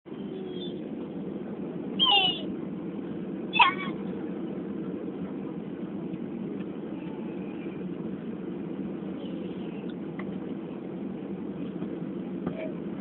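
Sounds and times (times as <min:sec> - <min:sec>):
jet engines and air system hum: 0:00.1 - 0:13.0.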